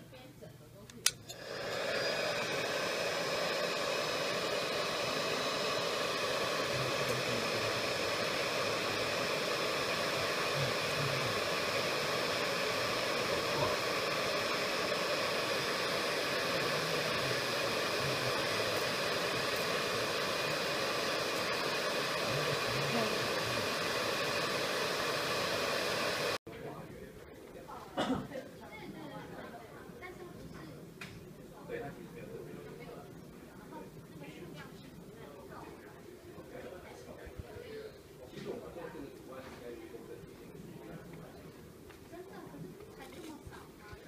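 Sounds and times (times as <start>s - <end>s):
faint motor whine: 0.1s - 27.5s
hot-air blower rushing: 1.0s - 26.4s.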